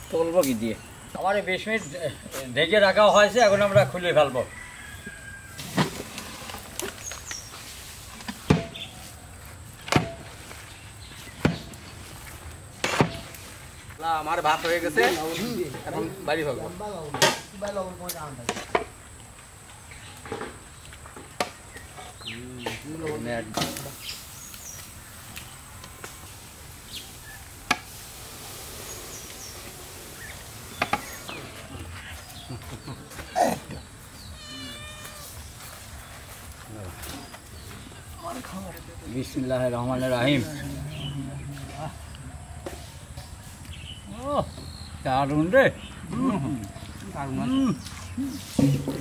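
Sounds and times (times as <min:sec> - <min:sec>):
steady background hiss: 0:00.0 - 0:49.0
faint bird chirps: 0:28.8 - 0:36.4.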